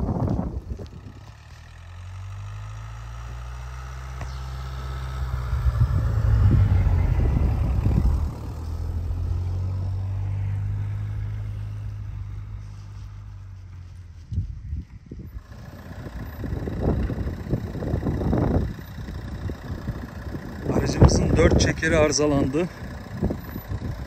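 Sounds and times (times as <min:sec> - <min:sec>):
car engine driving past: 0:01.0 - 0:14.4.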